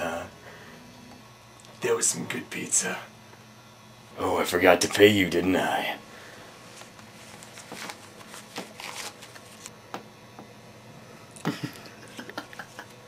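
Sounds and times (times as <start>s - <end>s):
paper banknotes rustling: 6.7s - 9.7s.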